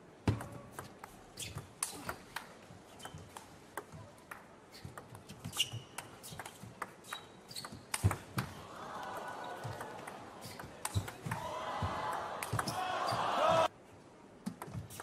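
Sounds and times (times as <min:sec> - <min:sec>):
shoes squeaking on floor: 0:04.7 - 0:07.9.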